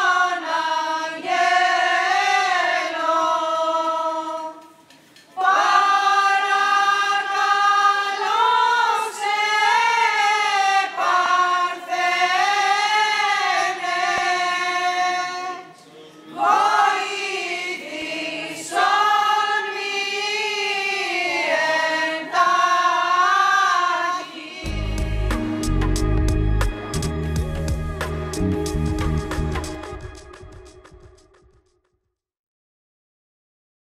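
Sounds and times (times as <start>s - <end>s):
choir singing a hymn: 0.0s - 27.3s
instrumental music with deep bass: 24.7s - 31.6s.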